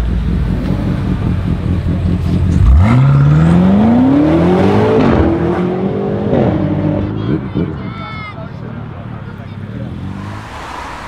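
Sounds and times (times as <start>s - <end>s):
car engine accelerating: 0.0s - 7.2s, 9.6s - 11.0s.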